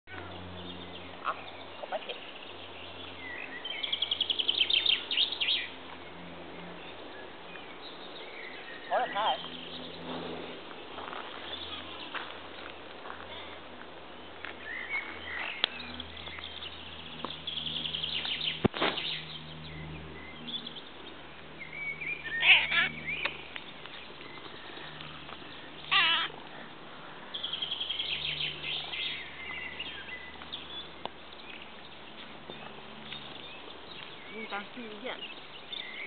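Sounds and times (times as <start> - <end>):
cats meowing: 22.4 - 22.9, 25.8 - 26.4.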